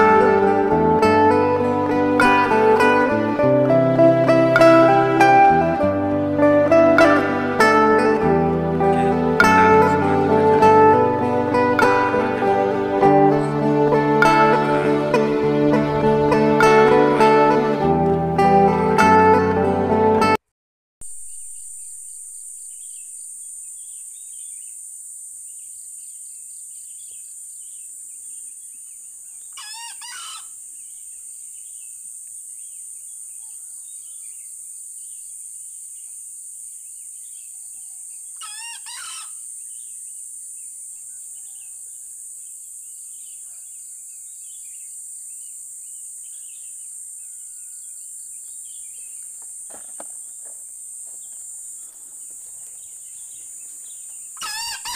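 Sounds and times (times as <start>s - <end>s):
high-pitched insect drone: 21.0s - 25.7s, 49.6s - 54.9s
small bird chirps: 25.4s - 49.4s, 51.2s - 54.9s
rooster crowing: 29.6s - 30.5s, 33.4s - 34.6s, 37.9s - 39.4s, 46.4s - 48.4s, 54.4s - 54.9s.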